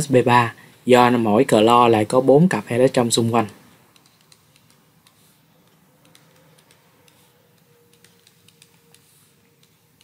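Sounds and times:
stylus tapping on pen tablet: 3.9s - 10.0s.

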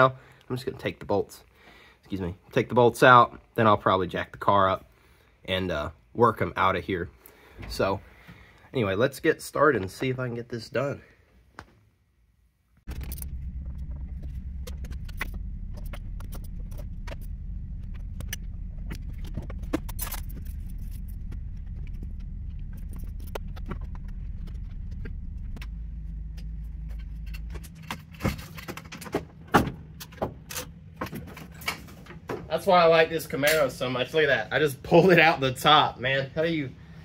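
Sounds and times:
steady low hum: 12.9s - 37.0s.

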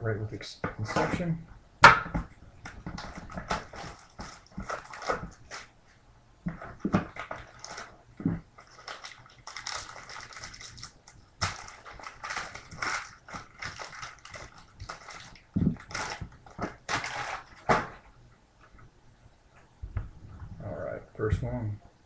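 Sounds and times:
foil wrapper crinkling and tearing: 3.0s - 5.7s, 7.0s - 8.0s, 8.6s - 17.9s.

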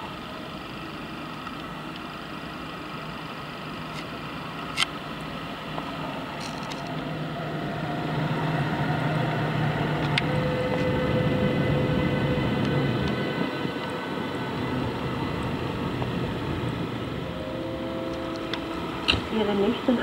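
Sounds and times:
train wheels rumbling on rails: 5.6s - 20.0s
steady tones: 5.8s - 20.0s.

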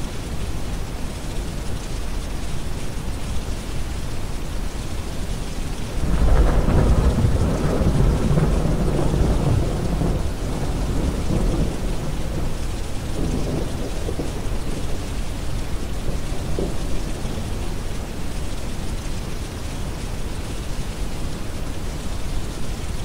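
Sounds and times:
steady rain: 0.0s - 23.0s
rolling thunder: 6.0s - 15.1s.

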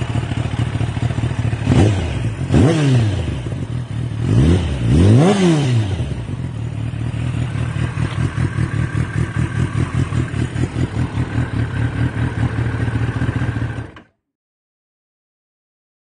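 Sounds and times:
motorcycle engine idling: 0.0s - 5.0s, 5.8s - 14.2s.

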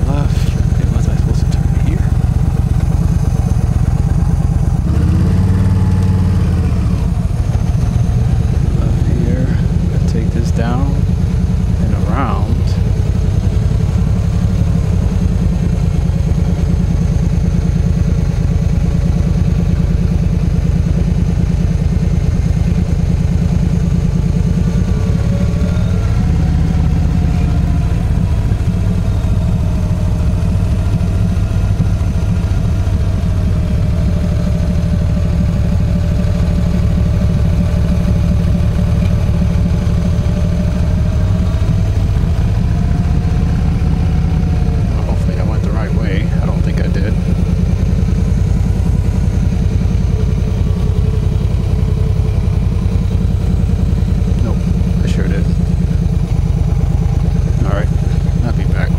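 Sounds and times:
motorcycle engine rumbling: 0.0s - 58.9s
faint wavering whine: 23.6s - 30.6s.

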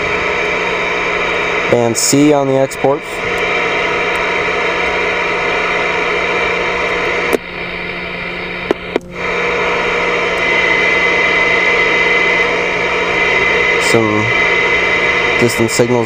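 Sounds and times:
faint steady whistle: 0.0s - 16.0s
radio static hiss: 0.0s - 16.0s
sharp clicks: 8.6s - 9.1s.

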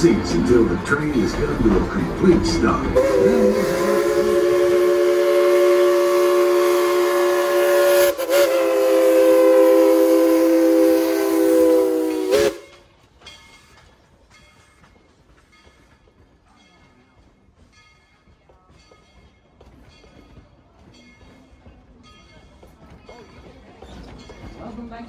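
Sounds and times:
steam locomotive whistle: 3.0s - 12.8s.

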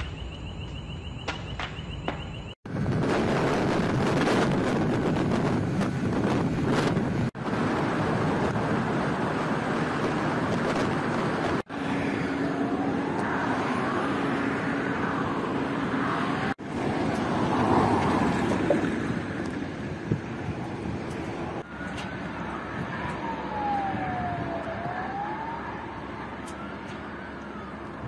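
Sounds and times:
wind buffeting the microphone: 2.7s - 11.7s, 16.4s - 25.8s.

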